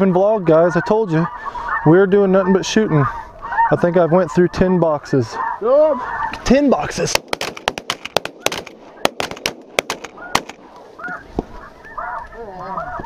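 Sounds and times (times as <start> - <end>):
geese honking: 0.0 - 13.0
sharp cracks and clicks: 7.0 - 11.6.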